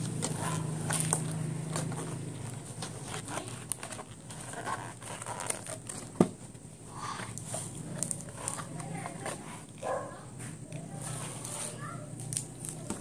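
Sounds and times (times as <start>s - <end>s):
paperboard box rustling: 0.1s - 6.4s.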